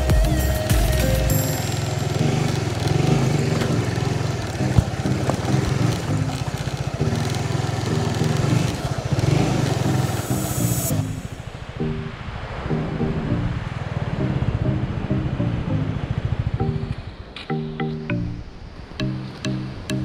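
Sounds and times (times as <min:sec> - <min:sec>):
motorcycle engine running: 0:00.0 - 0:11.6, 0:13.4 - 0:17.2.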